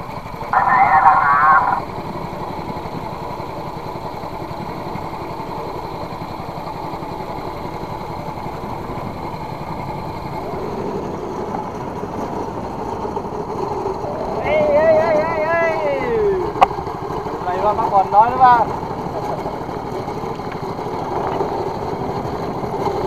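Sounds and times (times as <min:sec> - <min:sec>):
boat engine droning: 0:00.0 - 0:23.0.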